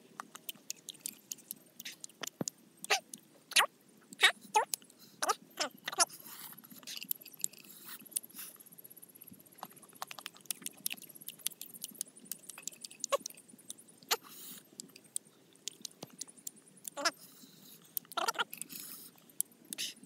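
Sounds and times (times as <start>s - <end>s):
wet lip smacks: 0.2s - 3.2s, 10.0s - 13.4s
tongue clicks: 0.2s - 6.1s, 9.9s - 17.2s, 17.8s - 20.0s.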